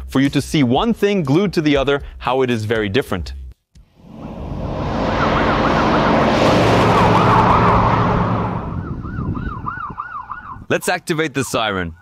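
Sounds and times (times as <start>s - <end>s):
tyre and road noise: 4.0s - 9.7s
warbling siren: 4.0s - 10.6s.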